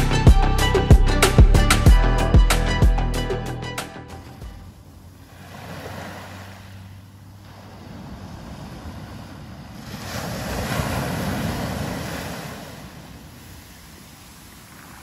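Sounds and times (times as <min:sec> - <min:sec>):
waves washing up a beach: 0:04.8 - 0:15.0.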